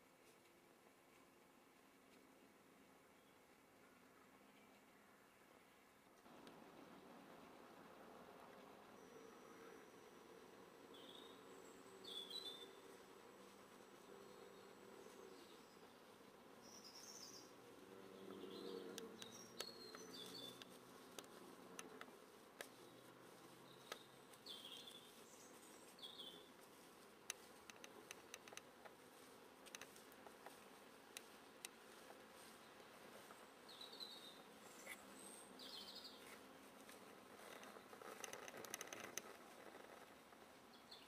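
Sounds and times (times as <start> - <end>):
light sharp ticks: 18.9 - 22.8, 23.8 - 25.0, 27.2 - 29.0, 29.6 - 31.8, 36.2 - 40.1.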